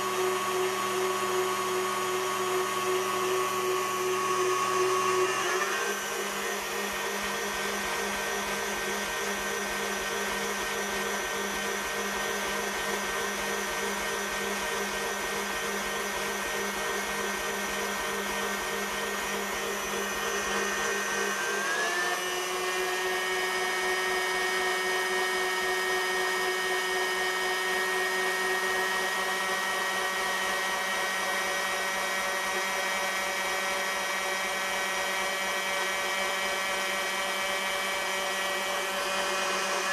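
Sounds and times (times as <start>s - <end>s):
stand mixer motor whine: 0.0s - 39.9s.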